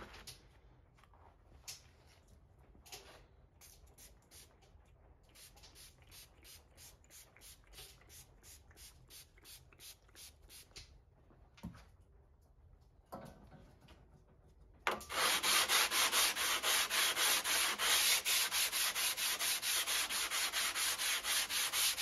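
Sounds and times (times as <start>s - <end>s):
rag rubbing on saw blade: 15.1s - 22.0s.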